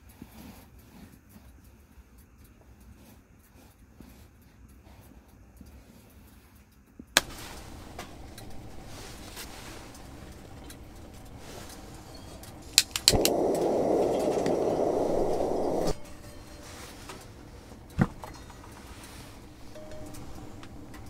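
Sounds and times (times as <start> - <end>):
handling rustle: 7.2 - 14.0
gas burner igniter clicks: 7.2 - 21.0
gas flame rushing: 7.2 - 21.0.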